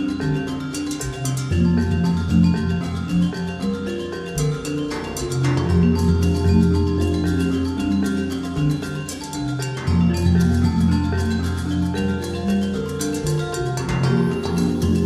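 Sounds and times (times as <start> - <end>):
light ticking percussion: 0.0 - 15.0
mallet percussion melody: 0.0 - 15.0
sustained bass line: 5.6 - 9.0, 9.9 - 12.0.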